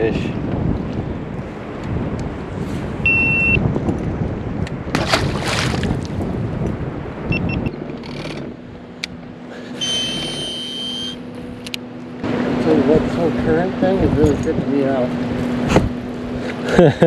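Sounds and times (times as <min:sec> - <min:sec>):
wind buffeting microphone: 0:00.0 - 0:09.5, 0:11.2 - 0:16.5
steady low hum: 0:00.0 - 0:17.0
brief high beep: 0:03.0 - 0:03.6, 0:09.8 - 0:11.2
high steady tone: 0:03.0 - 0:03.6, 0:09.8 - 0:11.4
water splash: 0:04.9 - 0:06.3.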